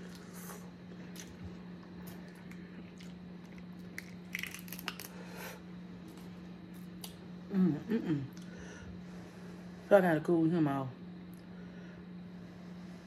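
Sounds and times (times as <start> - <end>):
wet chewing: 1.0 - 5.2
crawfish shells cracking: 2.2 - 5.2.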